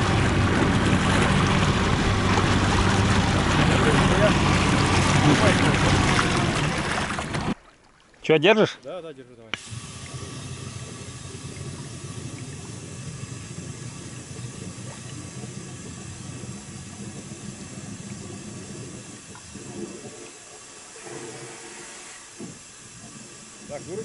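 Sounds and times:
air bubbling through water: 9.6 - 22.1.

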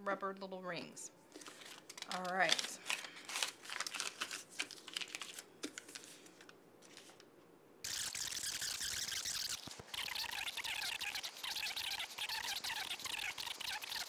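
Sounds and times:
loud crinkling rustle: 1.3 - 7.2.

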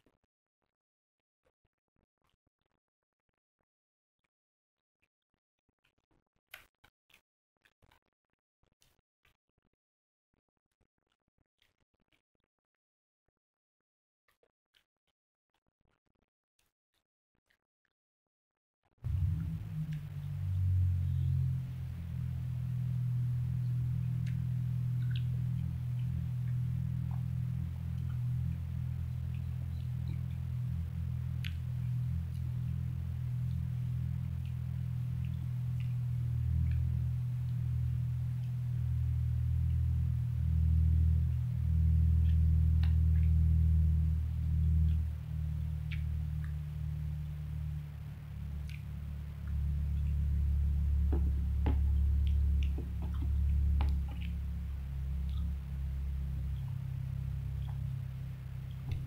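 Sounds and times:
low hum: 19.0 - 59.0
chewing: 23.6 - 39.2, 44.8 - 59.0
fingers picking at food: 41.2 - 59.0.

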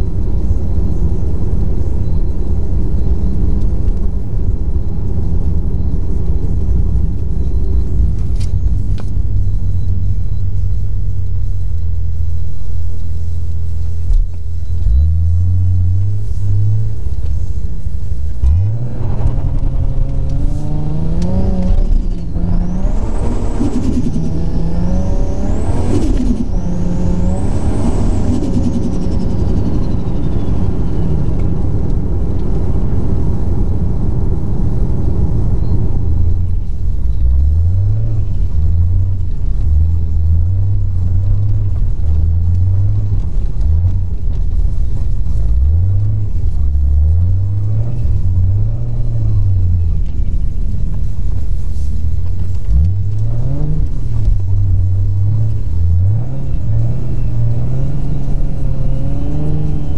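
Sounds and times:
car engine droning and revving: 0.0 - 59.9.

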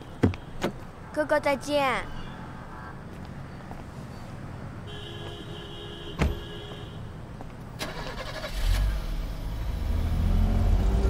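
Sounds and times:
car door shutting: 6.2 - 6.4
car engine pulling away: 7.8 - 11.0.

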